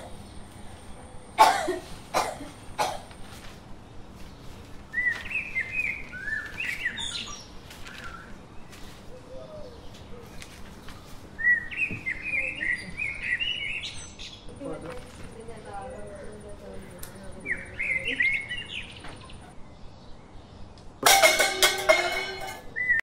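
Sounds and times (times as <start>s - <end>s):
small birds chirping: 0.0s - 21.0s
man coughing: 1.4s - 3.0s.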